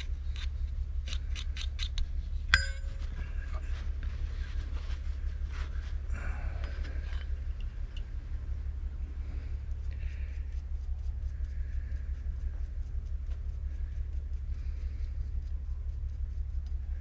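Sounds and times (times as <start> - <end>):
light ticks of metal parts: 0.0 - 4.1, 6.4 - 8.3, 9.6 - 17.0
soft scraping and handling: 0.0 - 8.4
low hum: 0.0 - 17.0
sharp metallic clink: 2.5 - 3.2.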